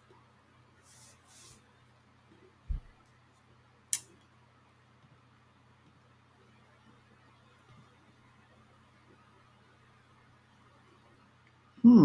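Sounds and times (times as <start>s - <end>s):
faint low hum: 0.0s - 12.0s
dull low thump: 2.7s - 2.9s.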